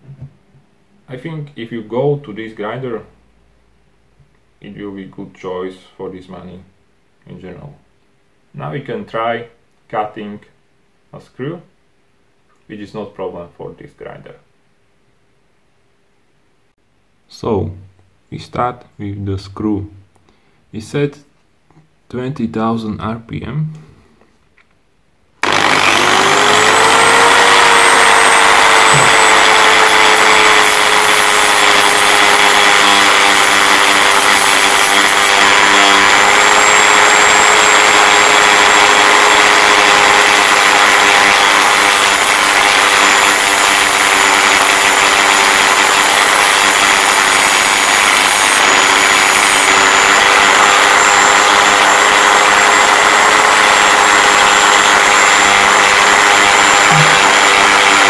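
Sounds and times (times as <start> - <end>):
disc grinding metal: 25.4 - 58.0
rotary tool whine: 25.4 - 58.0.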